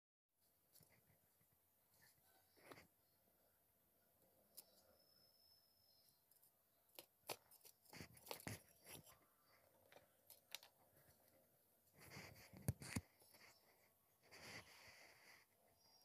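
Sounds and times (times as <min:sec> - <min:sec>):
dry clay crackling: 0:06.0 - 0:15.4.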